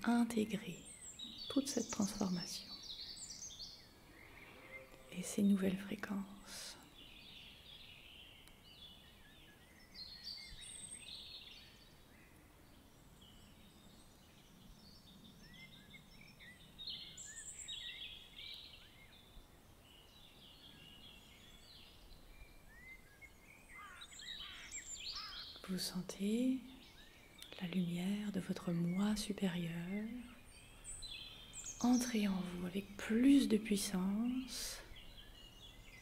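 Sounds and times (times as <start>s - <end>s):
soft steady hiss: 0.0s - 36.0s
birds chirping and whistling: 0.7s - 6.0s, 13.2s - 25.7s, 28.7s - 33.1s.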